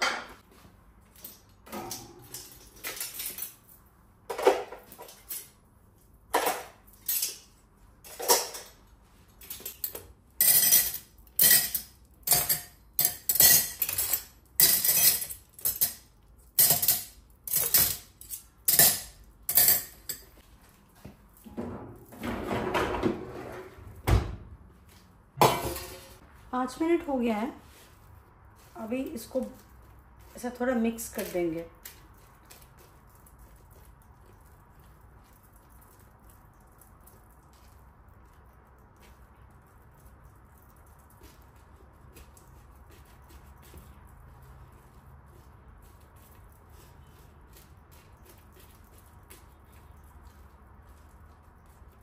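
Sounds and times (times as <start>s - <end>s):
dishwasher rattle and thud: 21.5s - 24.5s.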